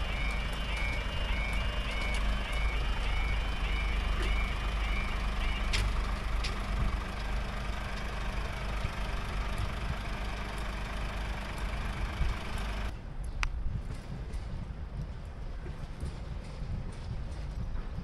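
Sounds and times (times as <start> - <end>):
diesel engine idling: 0.0 - 13.0.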